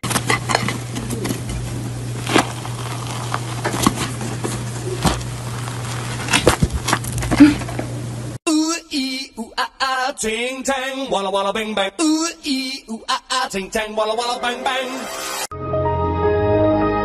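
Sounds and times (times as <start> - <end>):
steady low hum and hiss: 0.0 - 8.4
cake crust crackling as torn: 2.2 - 7.4.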